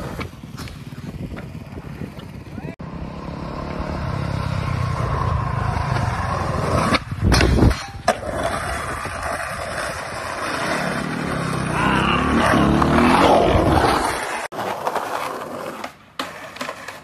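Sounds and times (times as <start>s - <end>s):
skateboard wheels rolling on concrete: 0.0s - 17.0s
skateboard grinding metal handrail: 5.8s - 17.0s.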